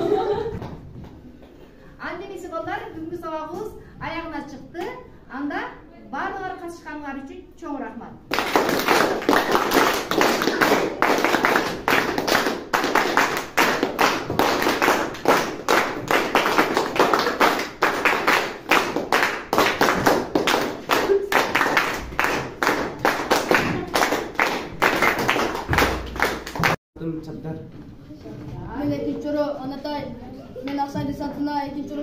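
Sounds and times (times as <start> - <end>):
group clapping hands: 8.3 - 26.8.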